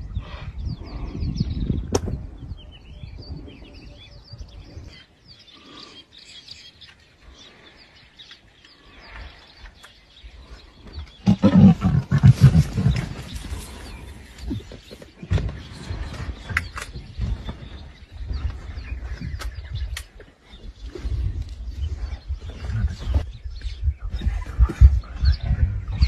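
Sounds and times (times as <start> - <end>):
lioness growling: 11.2 - 14.7.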